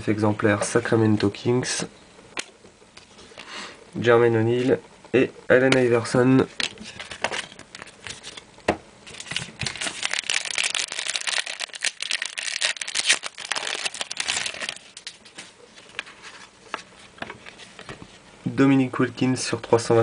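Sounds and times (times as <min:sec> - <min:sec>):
wrapper crinkling: 0:09.2 - 0:16.0.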